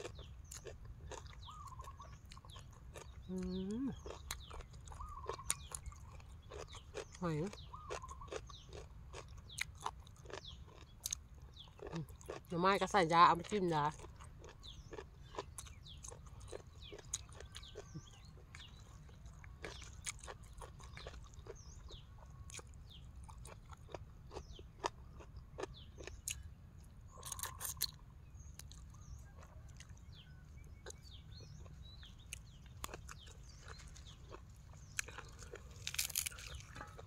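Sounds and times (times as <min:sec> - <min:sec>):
person chewing food: 0:00.0 - 0:12.5, 0:13.4 - 0:37.0.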